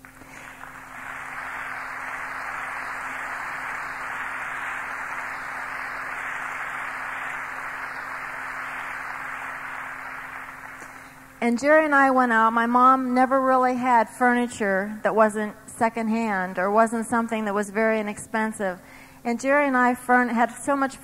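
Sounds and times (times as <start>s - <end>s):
audience applauding: 0.0s - 11.4s
faint steady hum: 0.0s - 21.0s.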